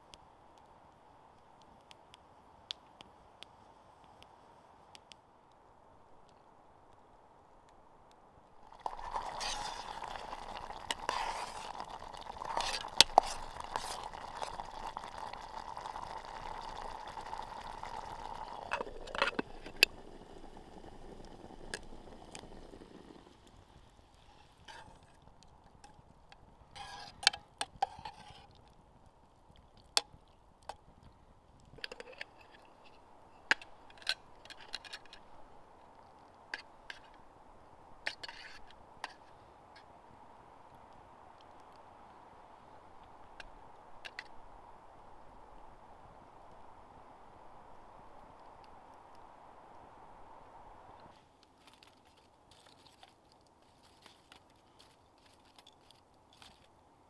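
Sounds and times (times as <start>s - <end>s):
water pouring from a kettle: 8.6s - 23.6s.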